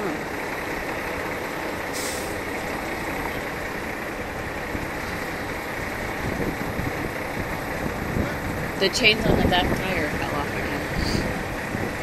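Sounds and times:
diesel truck engine idling: 0.0s - 12.0s.

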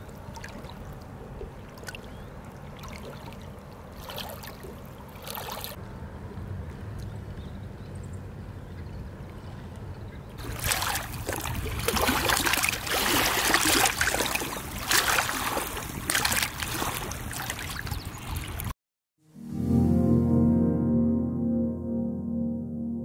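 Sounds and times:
lake water splashing and lapping: 0.0s - 5.8s, 8.4s - 18.7s.

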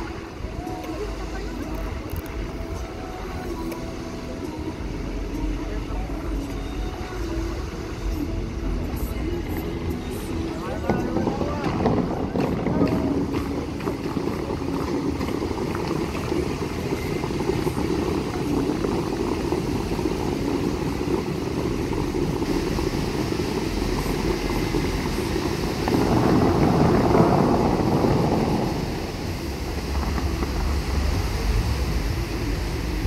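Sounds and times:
fountain water jets rushing: 0.0s - 33.0s.

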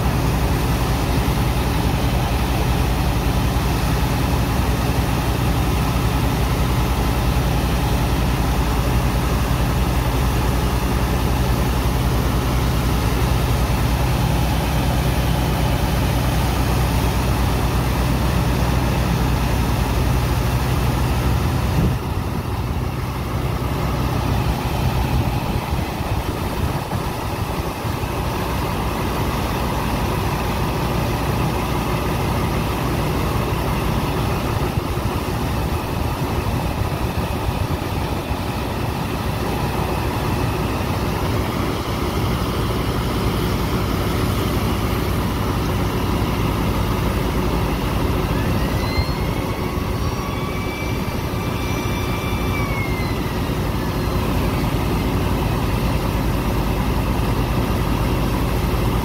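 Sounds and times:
high-pressure water jet hissing: 0.0s - 59.0s
pump engine running: 0.0s - 59.0s.

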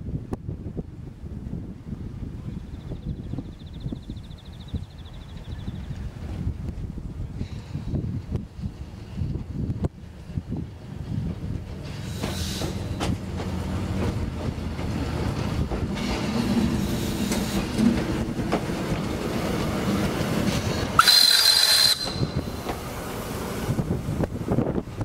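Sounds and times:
steam railcar rumbling past: 7.3s - 25.0s
high whistle blast: 21.0s - 22.5s.

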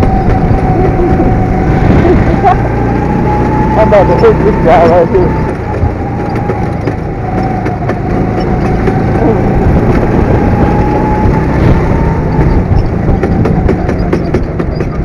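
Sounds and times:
go-kart engine rumbling: 0.0s - 15.0s.

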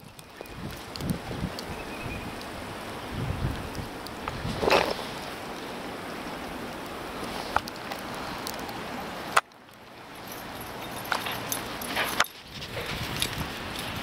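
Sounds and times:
steady outdoor hiss: 0.0s - 14.0s
footsteps crunching in snow: 10.8s - 14.0s.

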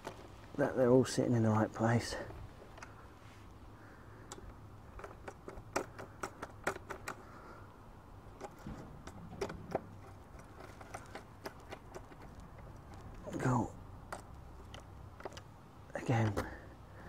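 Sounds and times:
hand tool clicking on bolts: 4.3s - 7.3s, 8.3s - 13.4s.

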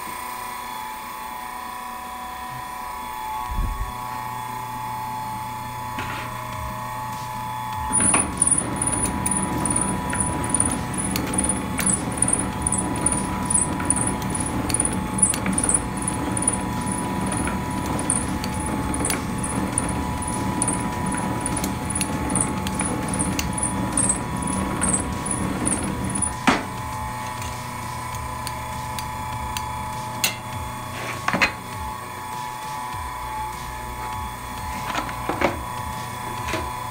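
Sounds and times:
noodle machine humming: 0.2s - 36.9s
ratcheting mechanism clicks: 7.9s - 26.4s.

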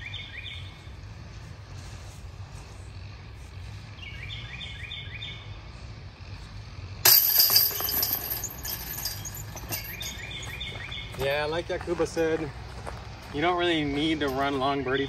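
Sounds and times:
disc striking basket chains: 7.0s - 12.3s.

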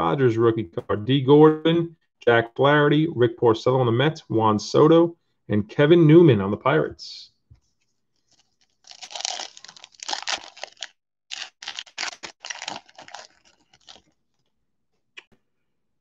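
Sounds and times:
foil wrapper tearing and crinkling: 8.3s - 14.4s.

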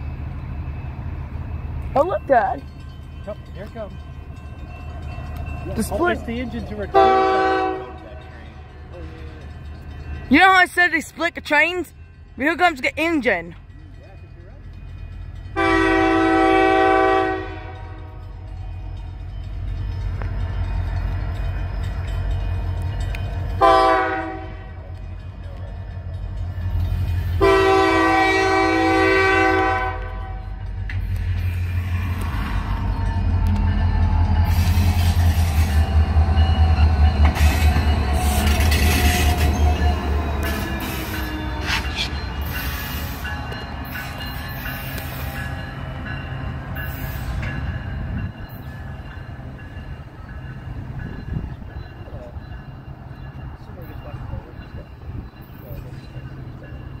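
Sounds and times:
locomotive air horn blasts: 6.9s - 8.0s, 15.6s - 18.2s, 23.6s - 24.8s, 27.4s - 30.6s, 38.2s - 39.5s.

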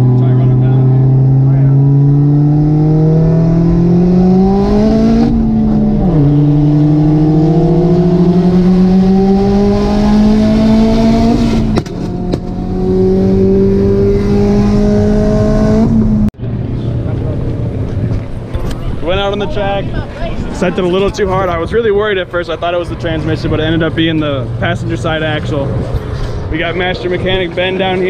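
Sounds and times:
car engine accelerating: 0.0s - 19.4s.

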